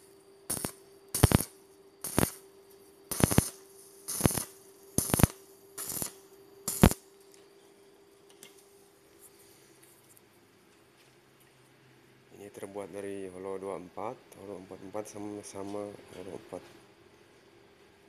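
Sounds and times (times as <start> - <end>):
arc welding crackling: 0.0 - 7.2
faint steady hum: 0.0 - 18.0.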